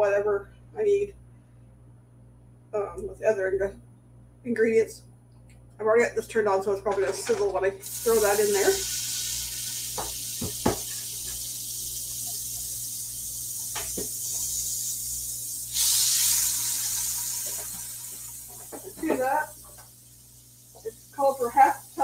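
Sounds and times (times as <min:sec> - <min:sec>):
butter sizzling in a pot: 0:07.2 - 0:22.0.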